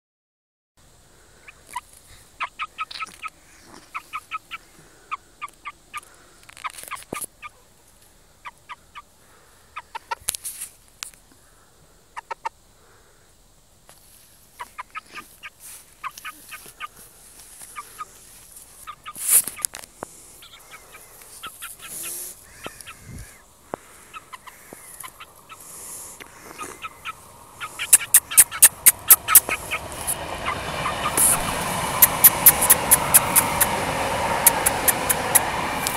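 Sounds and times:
chick peeping: 1.4s - 7.7s, 9.8s - 10.2s, 12.2s - 12.6s, 14.5s - 17.0s, 17.6s - 19.7s, 20.4s - 35.9s.

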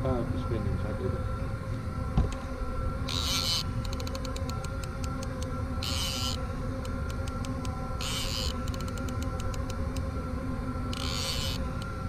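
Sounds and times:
steady low hum: 0.0s - 12.0s
fishing reel ratcheting: 8.0s - 9.7s, 10.9s - 11.6s.

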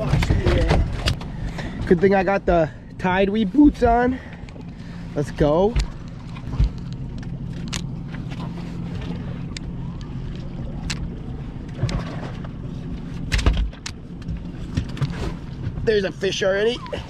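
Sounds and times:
boat engine idling: 0.0s - 17.0s.

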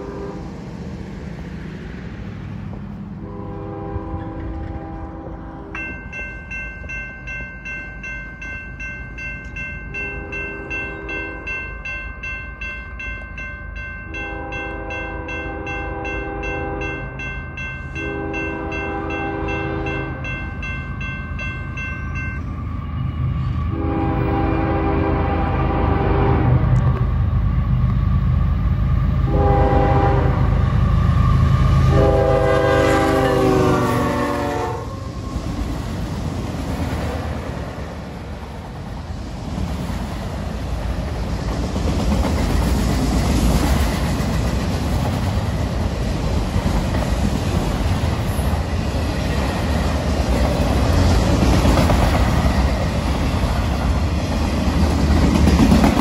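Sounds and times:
locomotive horn blowing: 0.0s - 0.5s, 3.2s - 5.8s, 14.2s - 17.1s, 18.0s - 20.2s, 23.7s - 26.7s, 29.2s - 30.6s, 31.8s - 35.0s
train wheels clacking on rails: 30.8s - 56.0s.

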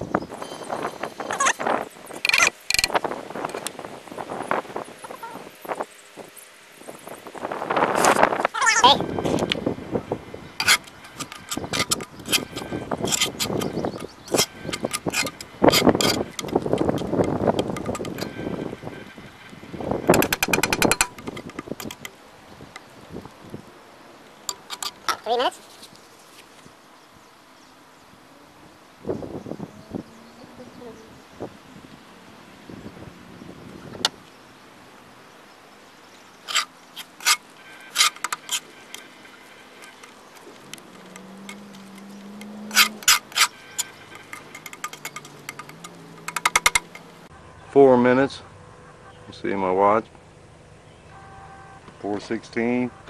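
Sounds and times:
fork scraping cast-iron skillet: 10.6s - 18.9s, 24.5s - 25.2s, 36.5s - 47.1s.

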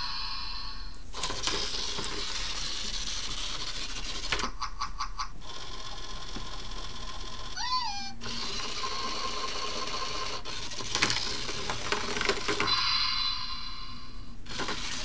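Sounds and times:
toy motor whirring: 1.2s - 4.5s, 5.4s - 12.8s, 14.5s - 15.0s
electronic squeak: 7.6s - 8.4s.

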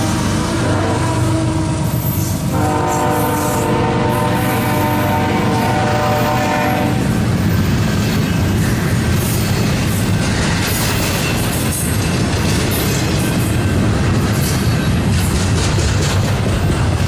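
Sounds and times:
locomotive horn blowing: 0.0s - 7.2s
freight train rumbling past: 0.0s - 17.0s.

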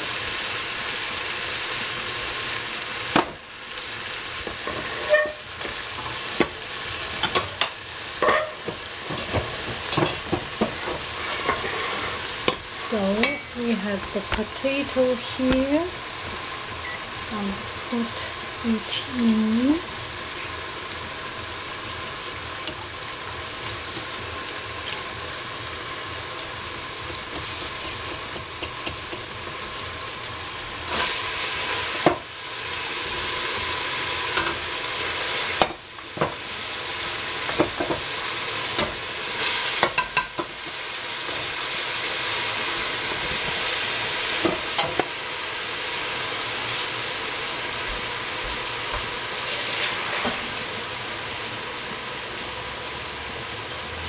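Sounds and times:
potato sizzling in a pan: 0.0s - 54.0s
utensil scraping and knocking pan: 8.2s - 12.6s.

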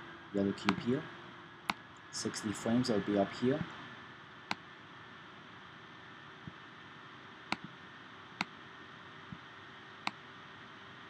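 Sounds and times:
computer fan whir: 0.0s - 11.0s
mouse clicks: 0.6s - 0.9s, 7.5s - 7.8s.

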